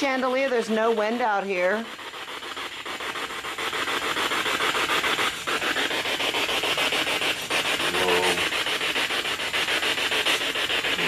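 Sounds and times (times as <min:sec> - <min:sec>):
night insects chorus: 0:05.9 - 0:08.7.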